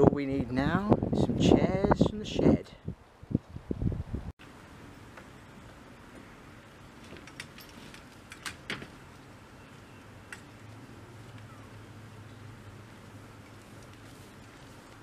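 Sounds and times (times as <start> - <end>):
metal folding chairs clattering: 7.0 - 9.0.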